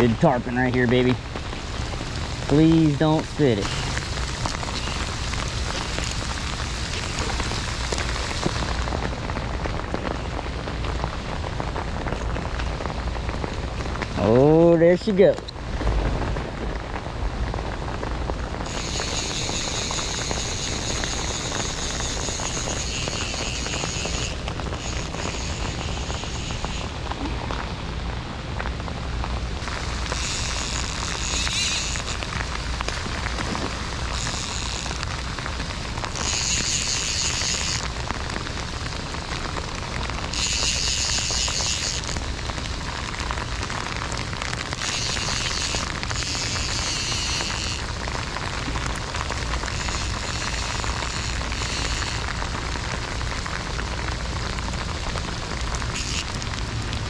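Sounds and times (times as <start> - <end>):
heavy rain: 0.0 - 57.0
fly reel whining: 18.6 - 26.9, 29.6 - 32.3, 34.1 - 35.2, 36.1 - 37.9, 40.3 - 42.2, 44.8 - 48.0, 49.6 - 52.4, 55.9 - 56.3.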